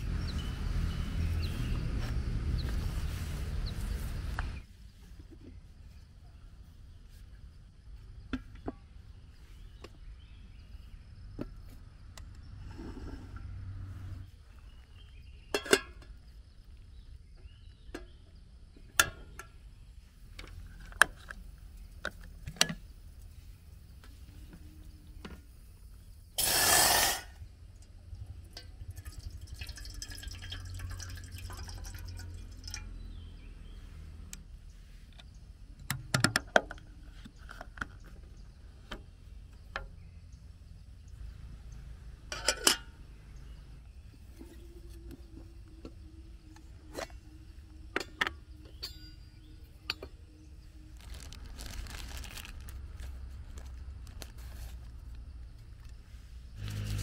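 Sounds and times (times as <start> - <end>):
water pouring into kettle: 28.8 - 32.9.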